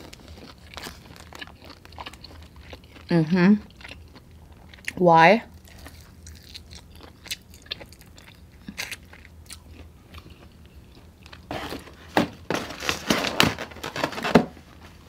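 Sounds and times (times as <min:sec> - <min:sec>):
chewing crunching: 0:00.0 - 0:11.8.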